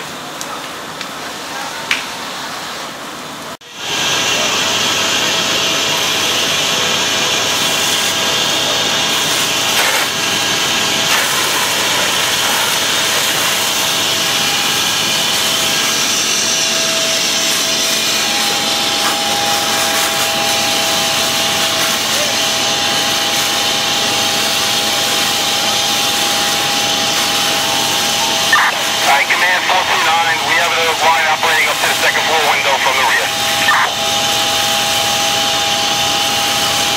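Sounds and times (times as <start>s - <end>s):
fire engine pumps running: 2.2s - 36.9s
hose streams spraying: 9.1s - 10.2s, 17.2s - 22.4s
faint high whine: 24.3s - 36.7s.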